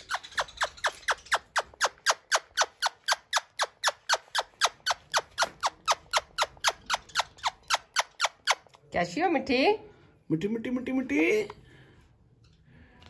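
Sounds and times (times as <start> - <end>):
parakeet screeching: 0.0 - 8.7.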